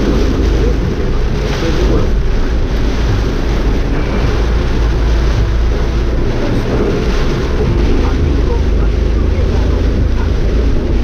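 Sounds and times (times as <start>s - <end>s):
low rumble of car: 0.0s - 11.0s
rain on windscreen: 0.0s - 11.0s
tyres on waterlogged road: 0.0s - 11.0s.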